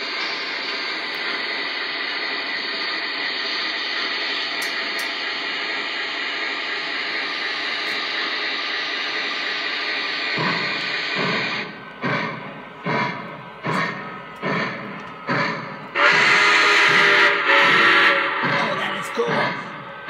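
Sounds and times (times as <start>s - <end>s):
model locomotive steam hiss: 0.0s - 13.8s, 14.4s - 19.5s
low loud sound: 9.6s - 20.0s.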